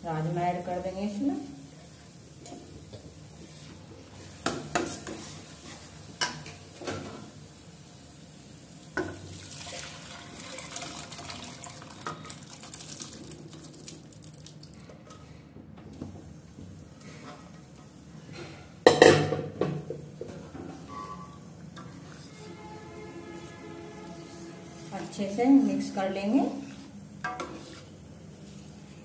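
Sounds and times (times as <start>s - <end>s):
liquid pouring into pan: 9.3s - 14.8s.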